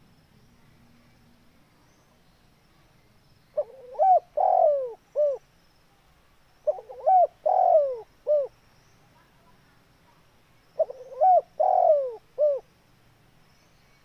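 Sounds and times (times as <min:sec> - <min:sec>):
dove cooing: 0:03.6 - 0:05.4, 0:06.6 - 0:08.5, 0:10.8 - 0:12.6.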